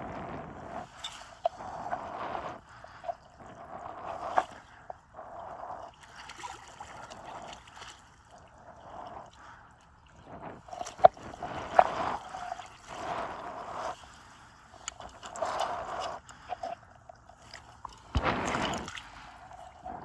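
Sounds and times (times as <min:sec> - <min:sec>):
water sloshing: 0:00.6 - 0:20.0
fish splashing in water: 0:17.4 - 0:20.0.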